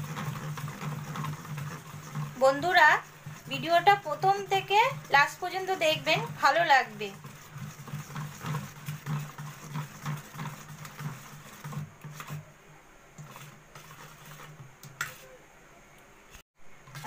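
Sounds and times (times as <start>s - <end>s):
whisk clicking against metal bowl: 0.0s - 12.4s
wire whisk beating batter: 0.0s - 12.5s, 13.2s - 15.4s.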